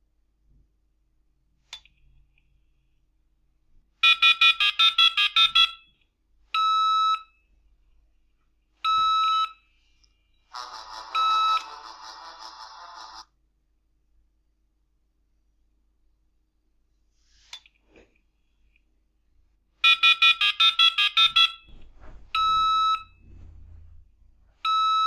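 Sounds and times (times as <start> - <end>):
steady modem tones: 10.5 - 13.2
modem dialing touch tones: 10.6 - 13.2.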